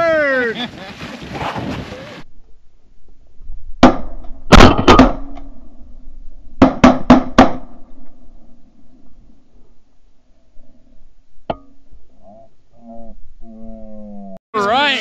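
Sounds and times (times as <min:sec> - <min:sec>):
shotgun shots with echo: 0:03.8 - 0:05.3.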